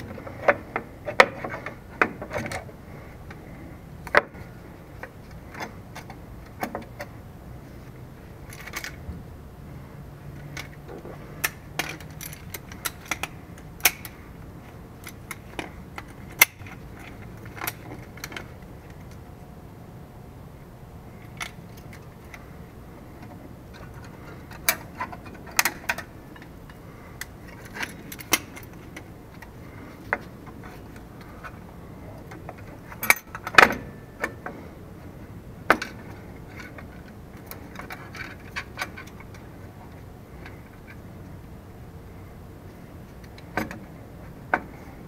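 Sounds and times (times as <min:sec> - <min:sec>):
metal brake parts clinking: 0:32.5 - 0:34.4.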